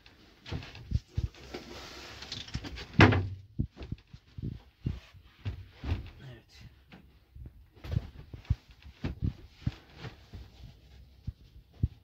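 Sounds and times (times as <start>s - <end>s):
seat cushions and boards thumping: 2.9s - 6.2s, 7.8s - 10.5s
rustling: 7.8s - 11.7s.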